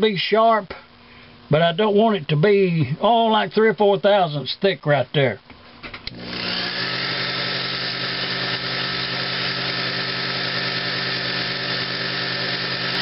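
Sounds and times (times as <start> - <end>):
lathe motor humming: 6.1 - 13.0.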